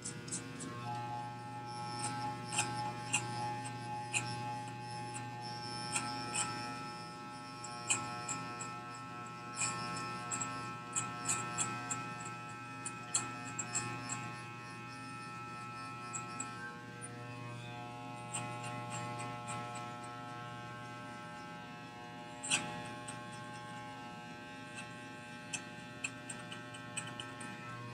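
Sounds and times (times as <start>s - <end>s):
electric hair clippers buzzing: 0.0s - 27.9s.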